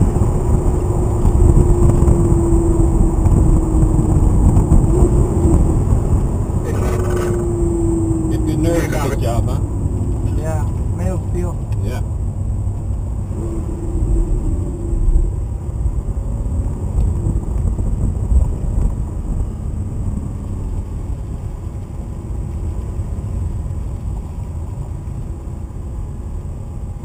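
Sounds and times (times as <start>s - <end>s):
car engine rumble from inside cabin: 0.0s - 27.0s
road noise: 0.0s - 27.0s.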